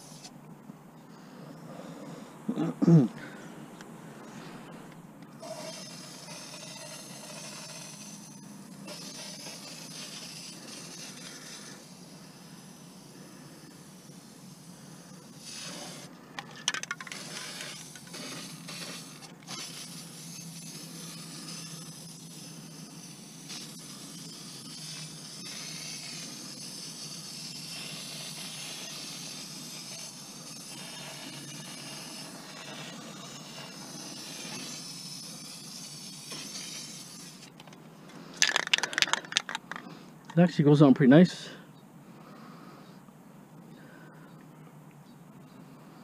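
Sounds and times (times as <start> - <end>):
spray paint can hissing: 0.0 - 0.3, 5.3 - 37.7.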